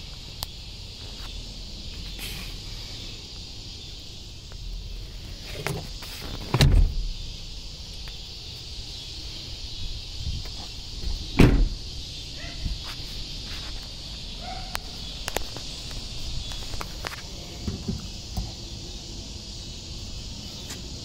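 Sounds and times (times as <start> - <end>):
high background hiss: 0.0 - 21.0
car doors shutting: 5.5 - 7.1, 10.4 - 11.8.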